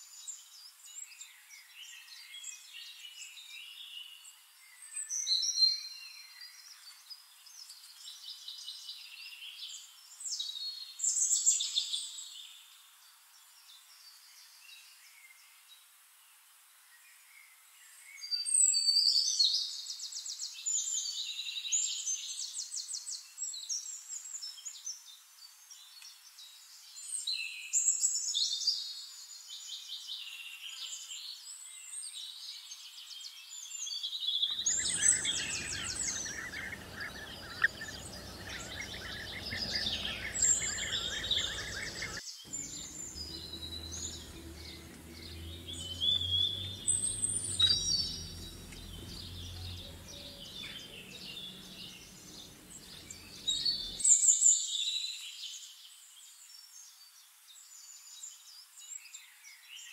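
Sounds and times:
birds chirping and trilling: 34.5s - 54.3s
outdoor background noise: 34.5s - 54.4s.

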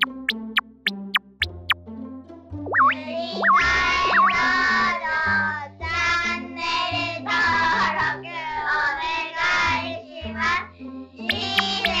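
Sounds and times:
cartoon boing sound effect: 0.0s - 1.8s, 2.7s - 4.5s
stepping bass line: 0.0s - 1.8s, 11.3s - 12.0s
high voice singing: 2.8s - 4.8s, 11.3s - 12.0s.

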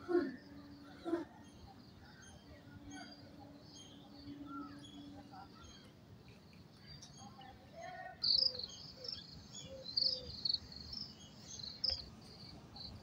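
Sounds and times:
small birds chirping: 0.3s - 13.0s
insects chirping: 8.2s - 13.0s.

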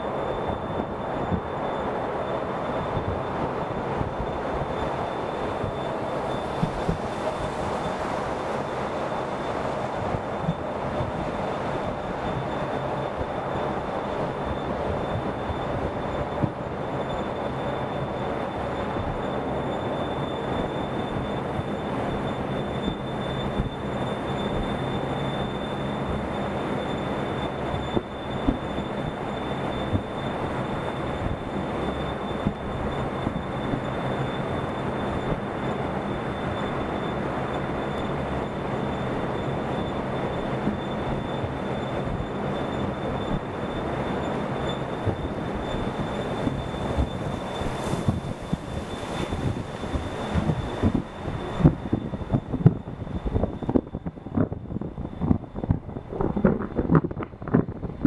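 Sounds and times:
thin high whine: 0.0s - 58.0s
vehicle road rumble: 27.1s - 58.0s.

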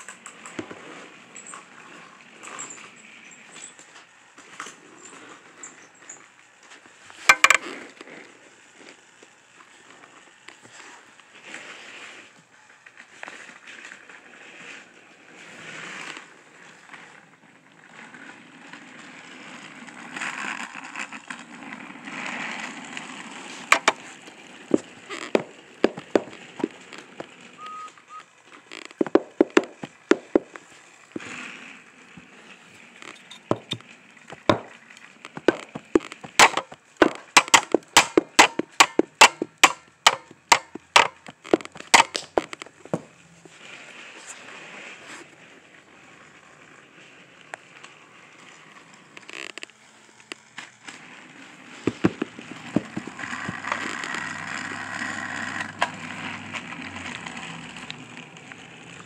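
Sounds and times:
plastic toy clicks and knocks: 7.3s - 7.6s, 23.7s - 24.1s, 35.4s - 42.7s.

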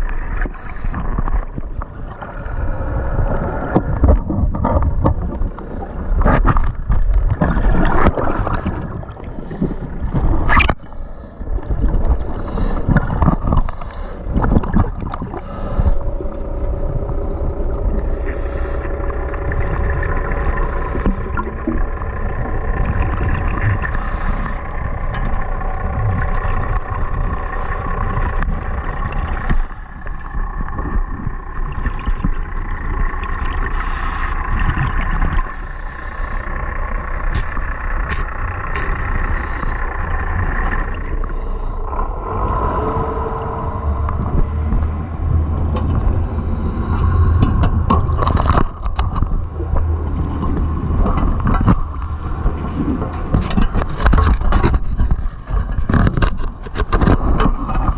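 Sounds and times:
underwater boat motor humming: 0.0s - 57.9s
diver breathing bubbles hissing: 0.3s - 1.5s, 2.2s - 3.7s, 7.8s - 30.6s, 33.6s - 34.8s, 35.5s - 37.2s, 39.1s - 48.2s, 50.8s - 53.8s.

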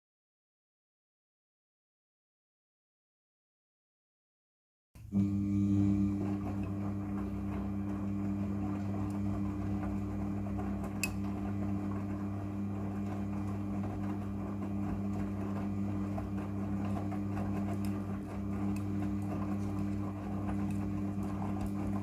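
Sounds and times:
washing machine motor hum: 5.0s - 22.0s.

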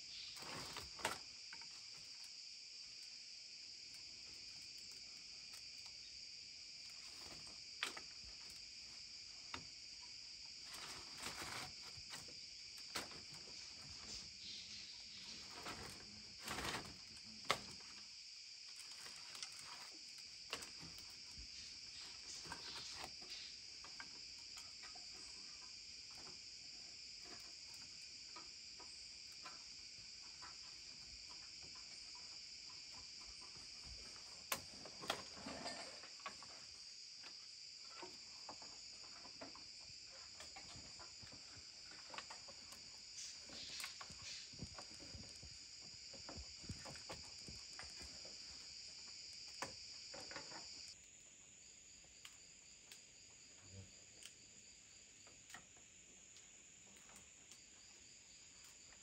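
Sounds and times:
insect chorus: 0.0s - 59.0s
wooden poles knocking and rustling: 6.8s - 18.0s, 18.7s - 26.4s, 27.2s - 50.9s.

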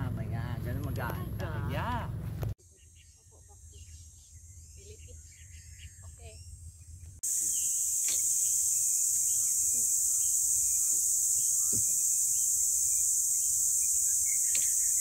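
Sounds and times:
faint bird chirps: 2.6s - 15.0s
high-pitched insect chorus: 7.2s - 15.0s
soft thump: 11.7s - 12.1s.

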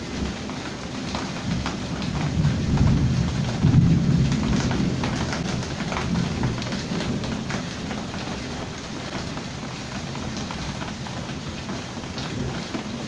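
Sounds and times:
heavy rain falling: 0.0s - 13.0s.

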